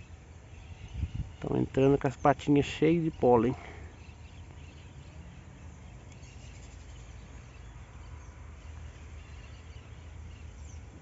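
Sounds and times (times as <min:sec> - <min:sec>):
faint bird chirps: 0:00.0 - 0:11.0
steady low hum: 0:00.0 - 0:11.0.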